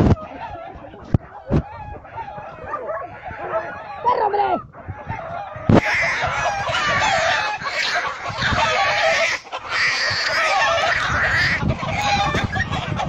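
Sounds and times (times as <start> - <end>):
hen squawking and clucking: 0.0 - 13.0.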